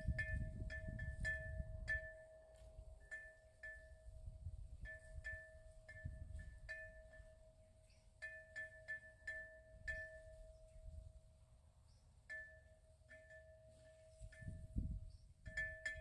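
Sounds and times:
wind rumble on microphone: 0.0s - 3.1s, 3.8s - 6.9s, 14.1s - 16.0s
faint chime tones: 12.3s - 16.0s.

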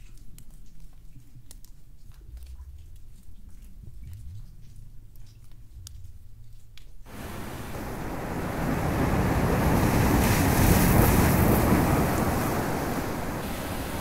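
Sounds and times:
rush of surging water in cave: 7.1s - 14.0s.

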